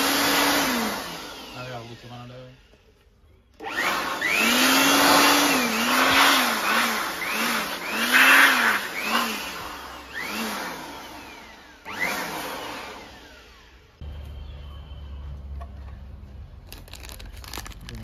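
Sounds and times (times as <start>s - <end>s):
electric dust blower whining: 0.0s - 2.8s, 3.6s - 14.0s.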